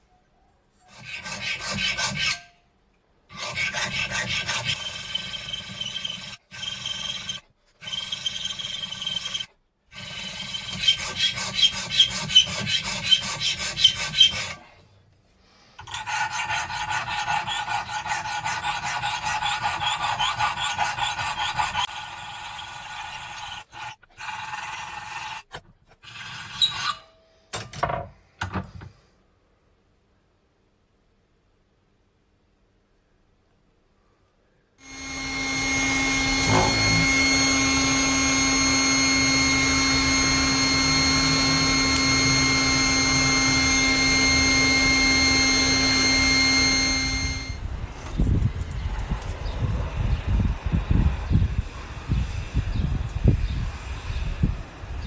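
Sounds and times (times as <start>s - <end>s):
file rasping on steel: 0.8s - 2.6s, 3.3s - 14.7s, 15.8s - 27.1s, 34.8s - 47.6s
ringing metallic tone: 34.8s - 47.6s.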